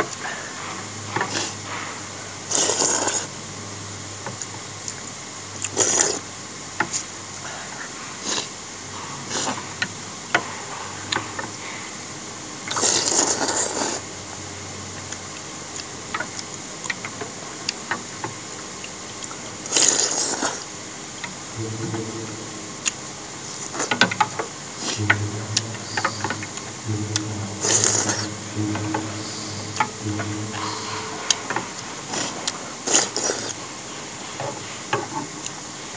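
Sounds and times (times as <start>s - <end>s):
low droning hum: 21.6s - 24.2s, 25.0s - 32.5s.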